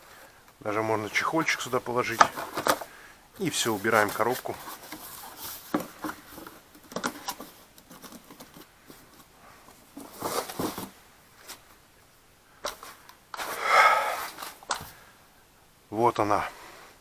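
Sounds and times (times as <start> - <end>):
cardboard rustling scrape: 3.5 - 11.6
handling clicks and knocks: 5.7 - 10.9.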